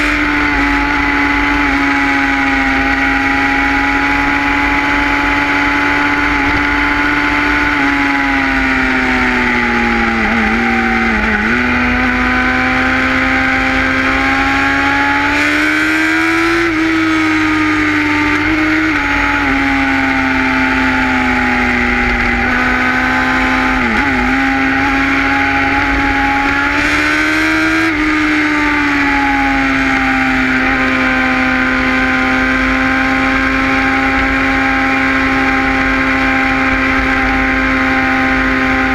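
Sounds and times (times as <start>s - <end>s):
motorcycle engine under load: 0.0s - 38.9s.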